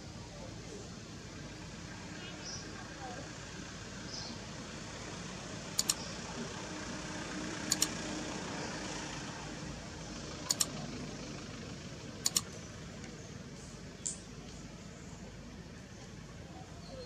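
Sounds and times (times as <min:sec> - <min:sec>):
steady background noise: 0:00.0 - 0:17.0
computer mouse double-clicks: 0:05.8 - 0:06.0, 0:07.7 - 0:07.9, 0:10.5 - 0:10.7, 0:12.2 - 0:12.5.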